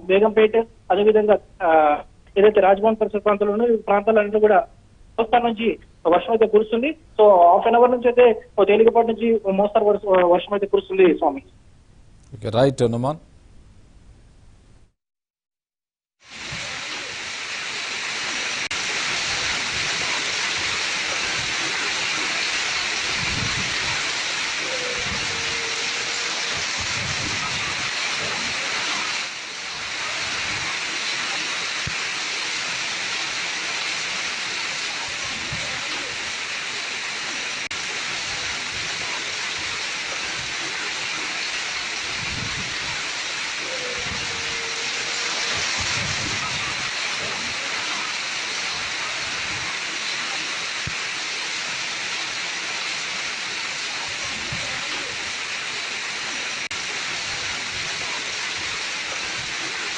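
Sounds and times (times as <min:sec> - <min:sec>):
heavy rain and hail: 0:16.2 - 0:59.9.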